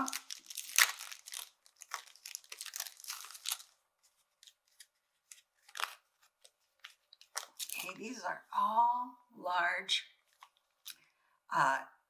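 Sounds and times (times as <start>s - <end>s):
paper rustle: 0.0s - 8.0s
paper wrapper tearing and crinkling: 0.0s - 8.0s.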